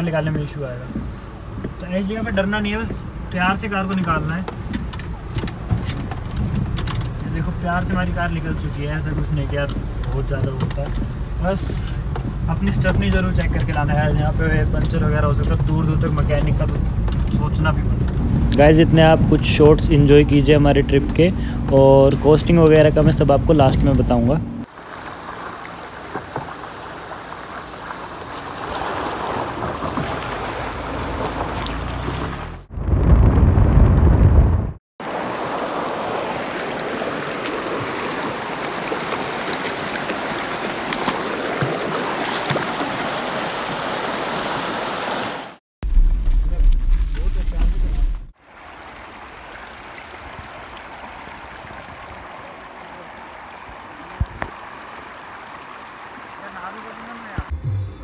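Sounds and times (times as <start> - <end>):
stream rushing over rocks: 18.6 - 32.7, 35.0 - 45.6, 47.6 - 57.6.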